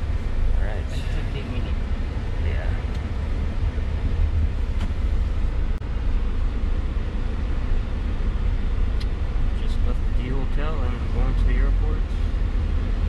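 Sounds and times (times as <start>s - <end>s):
car engine rumble and road noise: 0.0s - 13.0s.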